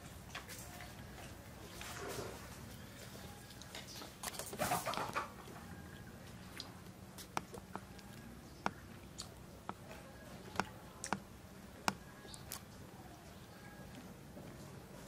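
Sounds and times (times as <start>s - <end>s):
faint steady hum: 0.0s - 15.0s
chewing and mouth smacks: 3.0s - 11.2s, 11.9s - 12.8s.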